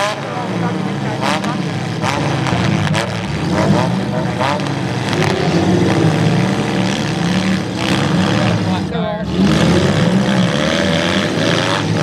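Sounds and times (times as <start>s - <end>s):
car engines revving: 0.0s - 12.0s.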